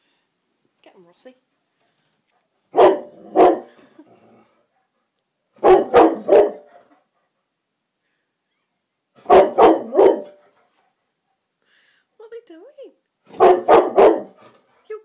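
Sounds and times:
dog barking loudly: 2.7s - 3.8s, 5.6s - 6.8s, 9.2s - 10.4s, 13.3s - 14.4s.

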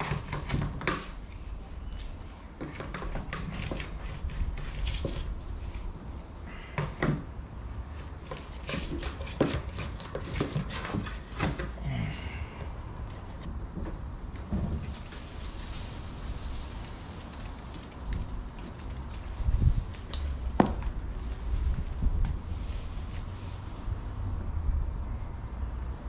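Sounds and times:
hand tool clicking and scraping: 0.0s - 5.3s.

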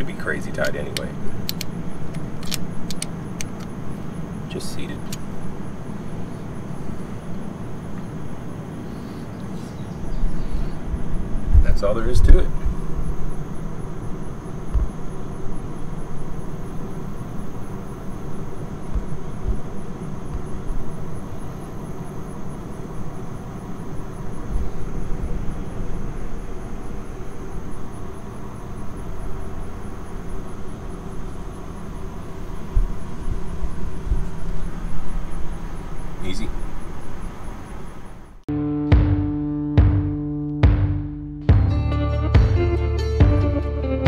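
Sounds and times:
low outdoor rumble: 0.0s - 44.0s
low thump: 14.7s - 15.0s, 18.9s - 19.6s, 38.9s - 41.7s
dull low thumps: 14.7s - 15.2s, 18.9s - 20.7s, 38.5s - 43.9s.

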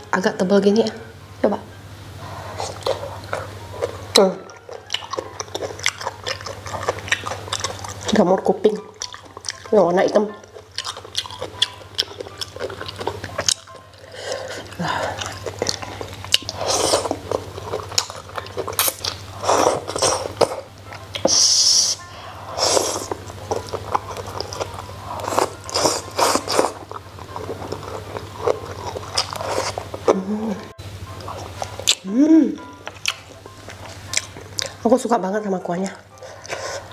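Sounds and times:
chewing and mouth noises: 2.5s - 35.0s, 35.8s - 36.9s
slurping: 21.2s - 30.5s.

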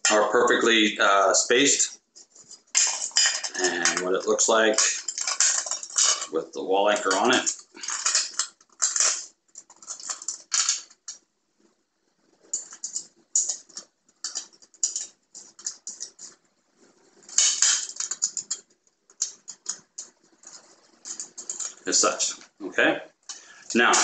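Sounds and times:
small metal parts clicking and rattling: 2.2s - 11.3s, 12.4s - 22.3s.

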